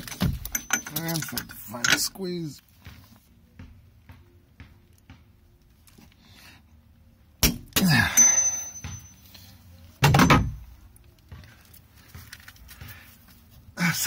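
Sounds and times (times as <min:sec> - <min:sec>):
wrench metallic click and ring: 0:00.3 - 0:02.0
person grunting with effort: 0:07.8 - 0:08.3.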